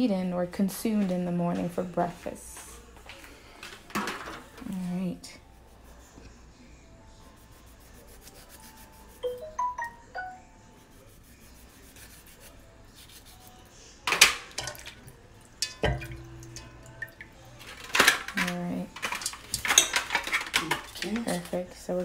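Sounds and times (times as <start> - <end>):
chime-like notes: 9.2 - 10.4
scraping clatter of kitchen utensils: 17.6 - 21.6.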